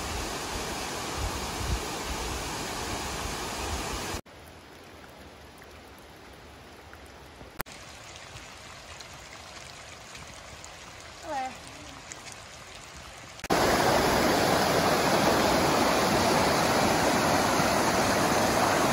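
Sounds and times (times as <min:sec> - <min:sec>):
water trickling and dripping: 0:00.0 - 0:18.9
waterfall rushing: 0:13.4 - 0:18.9.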